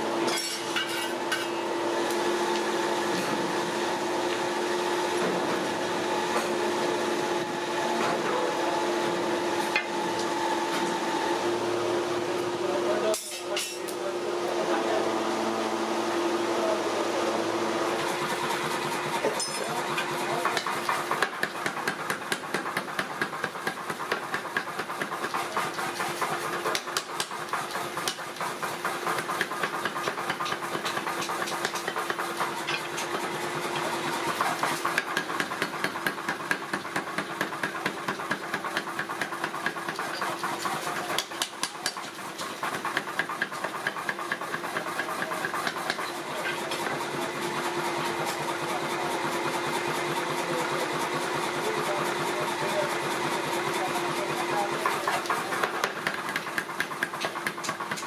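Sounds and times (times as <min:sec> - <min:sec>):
power hammer pounding steel: 0:17.9 - 0:58.0.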